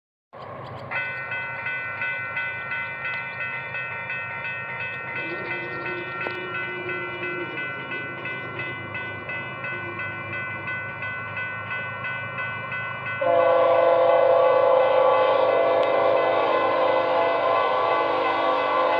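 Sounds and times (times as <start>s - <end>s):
locomotive air horn: 13.2s - 18.9s.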